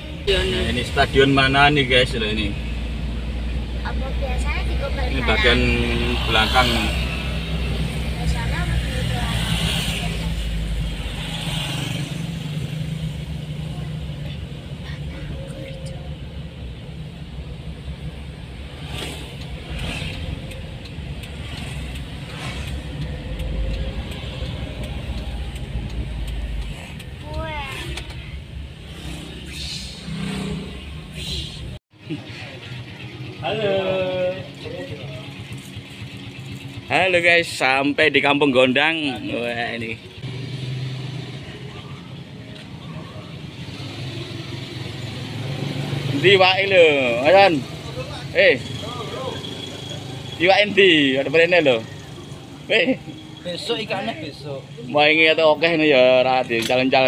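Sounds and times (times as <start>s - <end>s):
car road and engine rumble: 0.0s - 57.0s
street noise: 0.0s - 57.0s.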